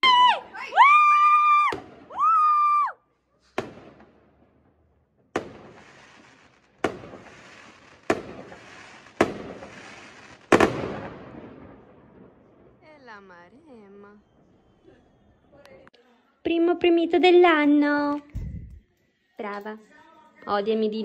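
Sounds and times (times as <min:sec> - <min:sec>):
fireworks bangs: 0:01.4 - 0:02.5, 0:03.4 - 0:15.5
fireworks crackling hiss: 0:05.4 - 0:11.1.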